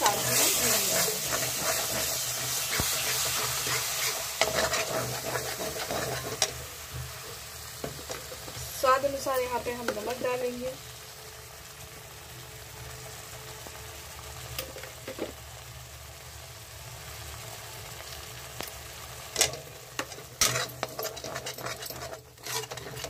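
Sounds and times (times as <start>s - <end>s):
metal spatula scraping a pan: 0.0s - 10.0s, 19.4s - 23.0s
paste sizzling in a pan: 0.0s - 23.0s.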